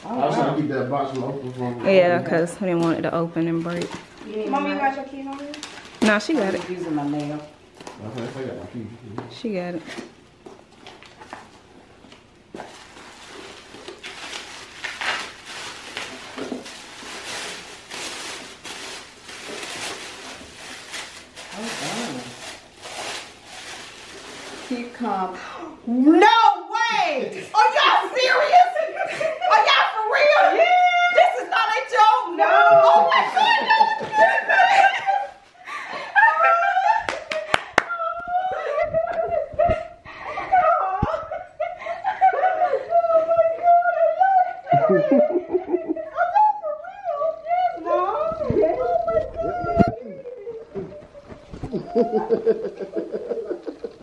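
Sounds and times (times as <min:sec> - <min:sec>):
paper and plastic rustling: 0:02.6 - 0:08.6, 0:09.8 - 0:25.3
hand claps: 0:37.1 - 0:38.0.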